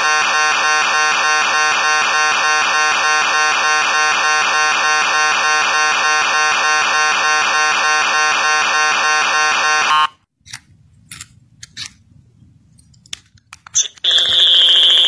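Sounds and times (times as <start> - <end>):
rapid electronic beeping: 0.0 - 9.9, 13.8 - 15.0
piercing electronic alarm tone: 0.0 - 10.1, 14.1 - 15.0.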